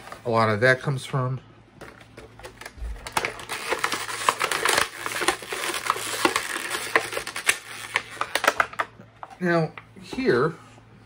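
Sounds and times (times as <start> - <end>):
plastic packaging crinkling: 1.8 - 8.9.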